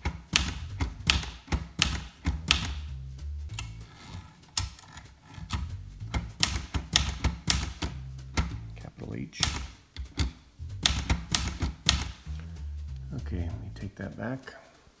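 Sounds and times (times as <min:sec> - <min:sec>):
typewriter keystroke clacks: 0:00.0 - 0:02.8, 0:05.5 - 0:08.6, 0:09.4 - 0:12.2.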